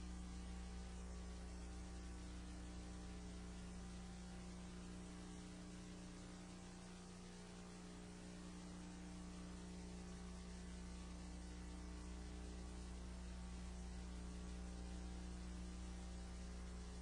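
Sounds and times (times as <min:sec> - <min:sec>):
faint mains hum: 0:00.0 - 0:17.0.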